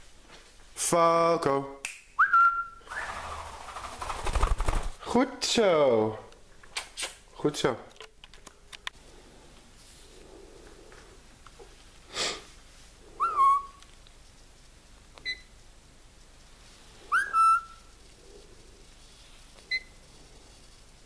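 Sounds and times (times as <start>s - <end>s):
parrot sliding whistles: 2.2s - 3.6s, 13.2s - 13.8s, 17.1s - 17.9s
parrot harsh call: 13.2s - 13.8s, 17.1s - 17.9s.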